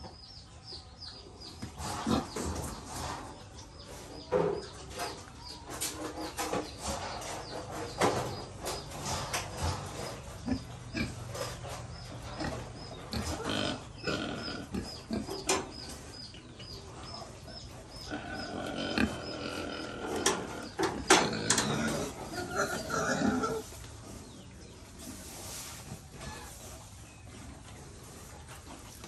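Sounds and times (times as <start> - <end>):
pigs grunting: 1.6 - 2.8, 8.7 - 24.4.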